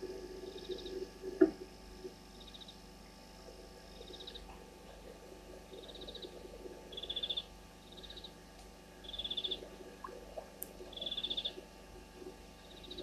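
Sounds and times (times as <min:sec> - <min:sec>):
faint low hum: 0:00.0 - 0:13.0
animal trilled chirps: 0:09.0 - 0:09.6, 0:10.9 - 0:11.6.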